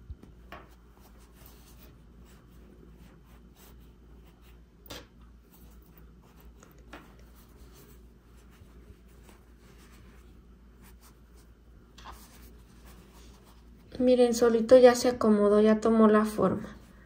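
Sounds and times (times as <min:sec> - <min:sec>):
hands rustling stuffing: 0:05.3 - 0:13.9.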